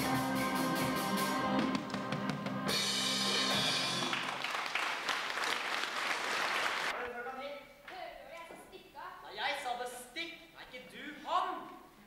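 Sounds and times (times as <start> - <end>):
bass guitar: 0.0 - 4.2
electric guitar: 0.0 - 4.2
drum kit: 0.0 - 4.4.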